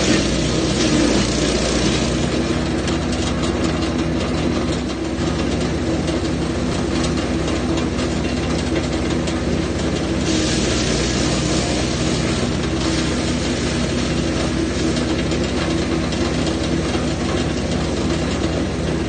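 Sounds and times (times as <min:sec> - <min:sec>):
wood chipper running: 0:00.0 - 0:19.0.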